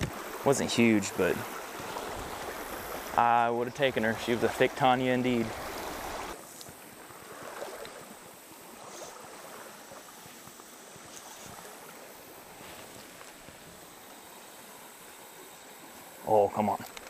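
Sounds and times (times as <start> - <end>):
creek water flowing: 0.0 - 17.0.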